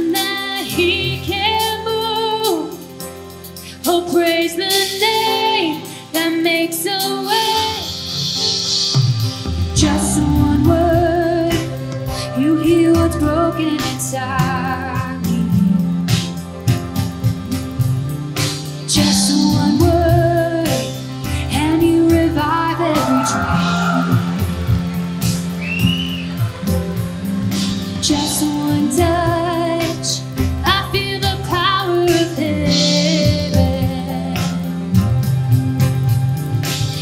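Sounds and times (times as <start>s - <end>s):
band playing slow worship song: 0.0s - 37.0s
person singing: 9.6s - 16.4s, 18.4s - 35.0s.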